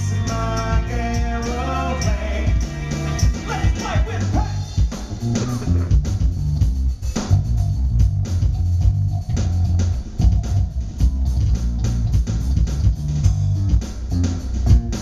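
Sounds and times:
electric bass guitar line: 0.0 - 15.0
rock band playing: 0.0 - 15.0.

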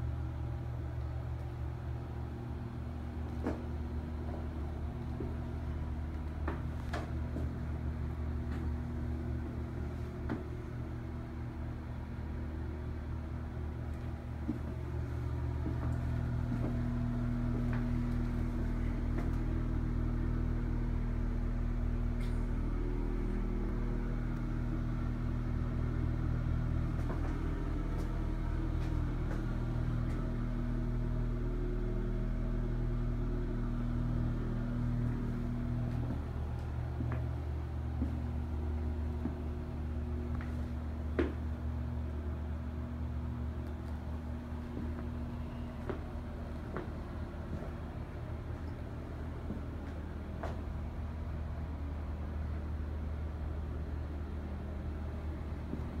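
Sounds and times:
low machine hum: 0.0 - 56.0.

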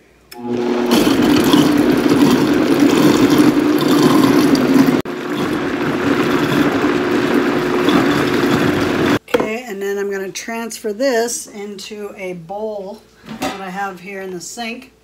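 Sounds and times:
blender motor running: 0.4 - 9.2.

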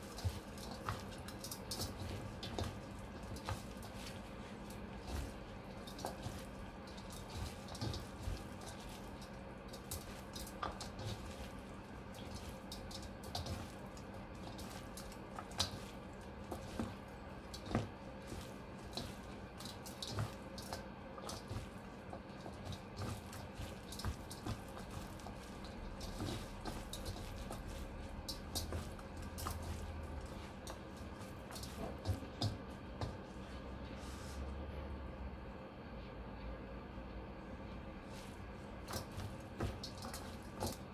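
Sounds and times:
wet squishing of greens: 0.0 - 34.5, 37.8 - 40.9.

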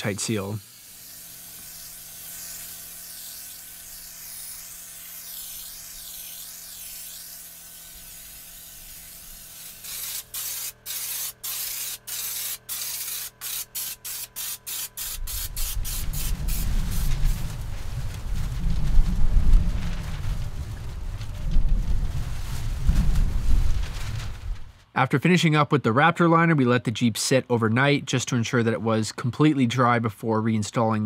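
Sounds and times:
spray gun hissing: 0.0 - 17.5.

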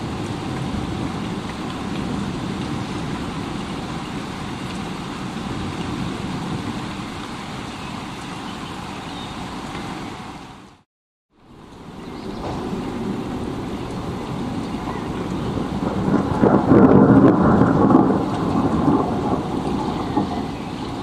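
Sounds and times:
low rumble of thunder: 0.0 - 7.2, 11.5 - 21.0
heavy rain: 0.0 - 21.0.

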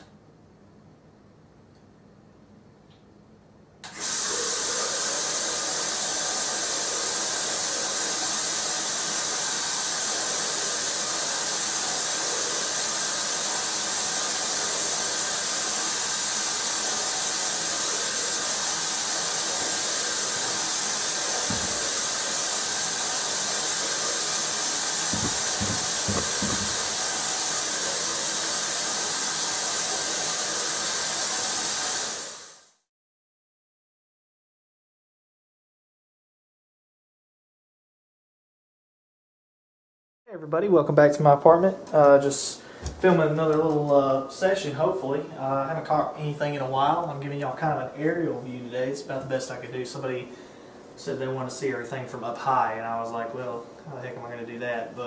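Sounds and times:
loud hiss: 3.8 - 32.8.

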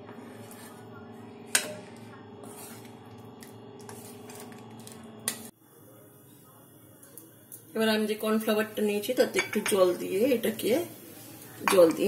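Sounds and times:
ladle stirring soup: 0.0 - 5.5.

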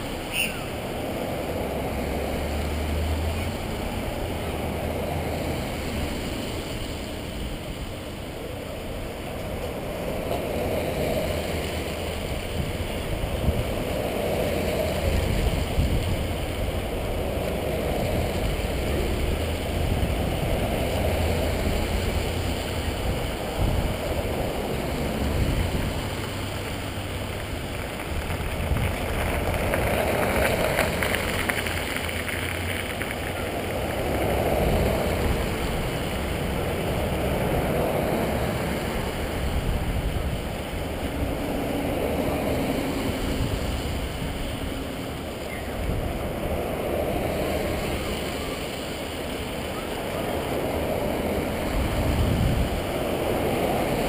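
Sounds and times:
vehicles passing: 0.0 - 54.0.

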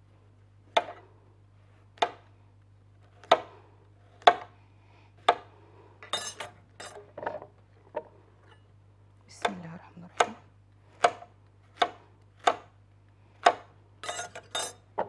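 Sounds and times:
knife chopping on cutting board: 4.2 - 4.5, 11.0 - 12.7, 13.4 - 14.3.

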